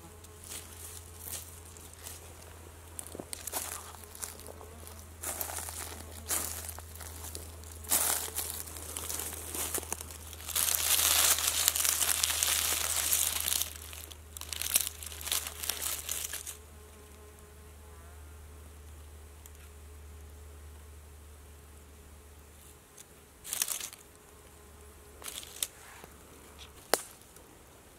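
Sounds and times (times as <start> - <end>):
dry leaves crinkling underfoot: 0.2 - 16.6, 23.4 - 24.1, 25.2 - 27.4
hands rustling through leaves: 0.4 - 16.6, 23.4 - 24.0, 25.2 - 26.1.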